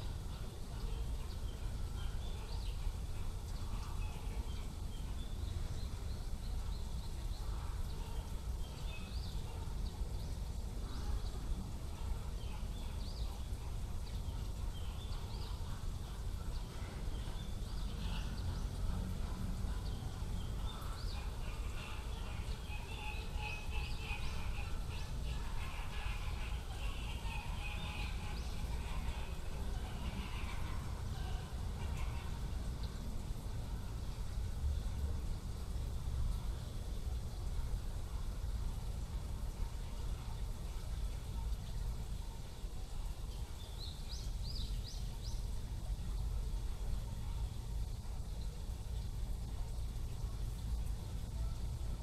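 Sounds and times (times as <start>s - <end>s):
small birds chirping: 41.3s - 45.7s.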